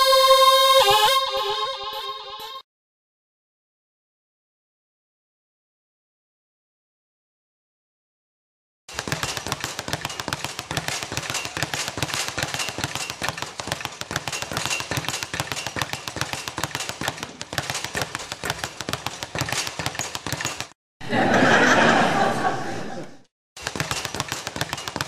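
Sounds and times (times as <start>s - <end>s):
rapid crackling pops: 8.9s - 20.8s.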